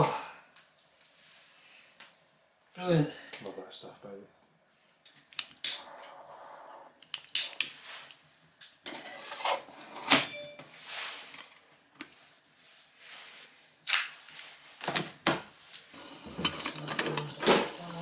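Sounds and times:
metal cookware clinking: 0:16.0 - 0:18.0.

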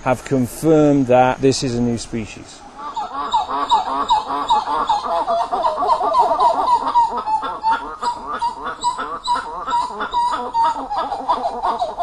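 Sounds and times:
monkeys calling: 0:01.1 - 0:12.0.

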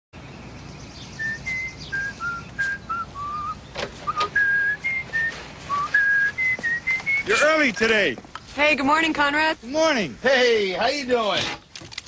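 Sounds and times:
person whistling a tune: 0:01.2 - 0:07.4
sharp clicks: 0:11.7 - 0:12.0.

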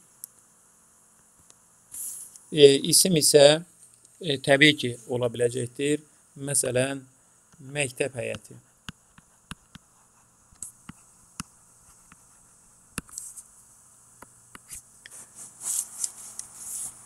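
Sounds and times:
pen tapping and scratching: 0:08.9 - 0:09.8.

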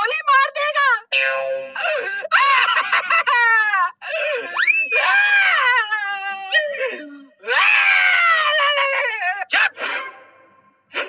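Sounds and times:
cartoon voice wailing and crying: 0:04.6 - 0:10.2.

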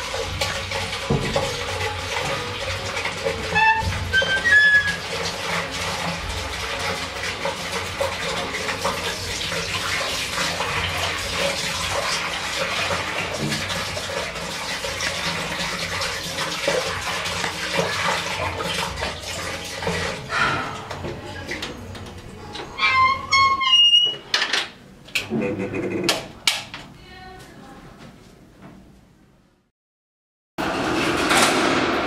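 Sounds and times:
tap water running into sink: 0:00.0 - 0:23.1.

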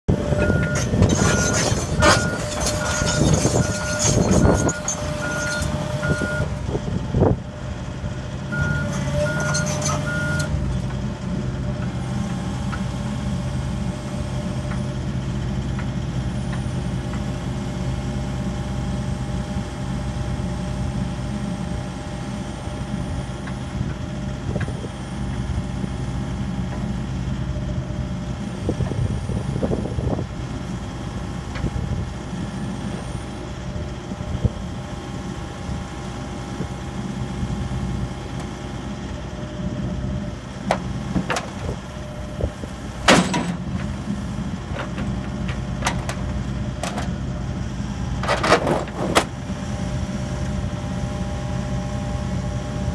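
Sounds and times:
excavator diesel engine: 0:00.1 - 0:52.9
beeping alarm: 0:00.4 - 0:06.5, 0:08.5 - 0:10.5.

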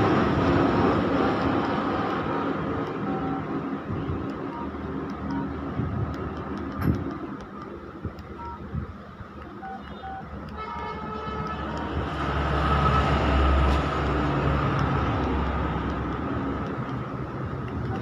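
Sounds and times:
phone keypad beeps: 0:02.9 - 0:03.6, 0:04.2 - 0:05.6, 0:08.2 - 0:08.7, 0:09.4 - 0:10.3
vehicle passing by: 0:11.6 - 0:17.5.

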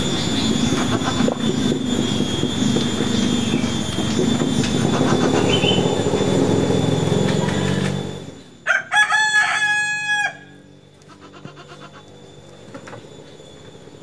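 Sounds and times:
rooster crowing: 0:08.6 - 0:12.0.

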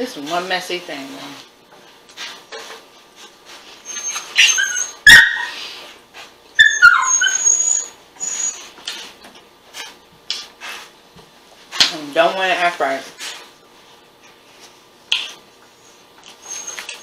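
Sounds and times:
small dog whimpering: 0:03.8 - 0:05.6, 0:06.6 - 0:08.7, 0:16.4 - 0:17.0
faint chewing: 0:16.0 - 0:17.0.

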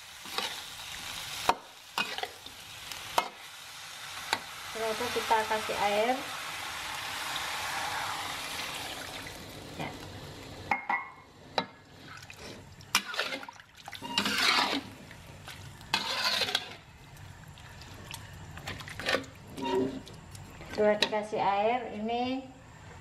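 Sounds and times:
metal spatula stirring in wok: 0:01.9 - 0:02.4, 0:12.9 - 0:15.0, 0:15.8 - 0:16.9
water pouring into wok: 0:05.7 - 0:10.5
liquid sloshing: 0:12.0 - 0:16.8.

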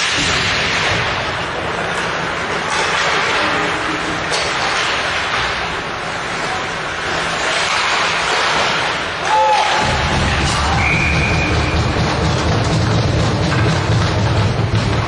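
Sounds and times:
hockey sticks: 0:00.0 - 0:15.0
skates on ice: 0:00.0 - 0:15.0
players and spectators voices: 0:01.1 - 0:13.2.

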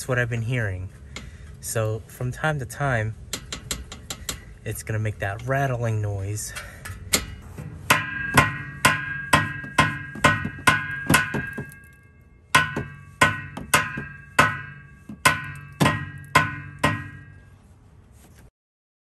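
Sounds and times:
hammer striking metal: 0:06.9 - 0:17.5.

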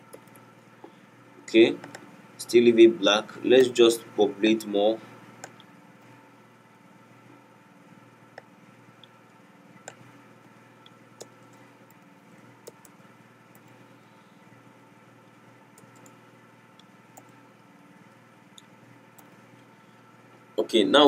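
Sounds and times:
faint steady hum: 0:00.0 - 0:21.0
computer keyboard clicks: 0:00.1 - 0:00.4, 0:15.8 - 0:16.2.

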